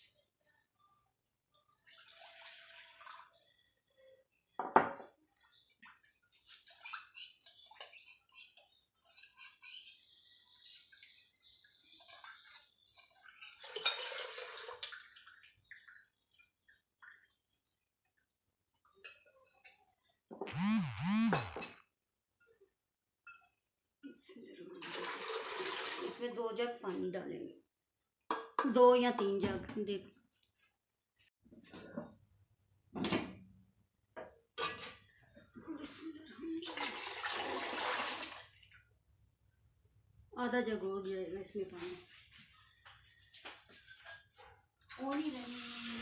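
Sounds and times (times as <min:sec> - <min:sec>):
spoon clinking and scraping in pot: 0:06.4 - 0:14.4, 0:18.9 - 0:20.2, 0:34.6 - 0:35.1.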